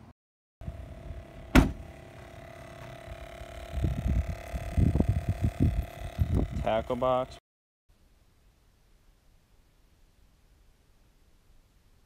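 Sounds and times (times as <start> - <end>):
steady hum: 0.6 - 7.4
sharp knock: 1.5 - 1.8.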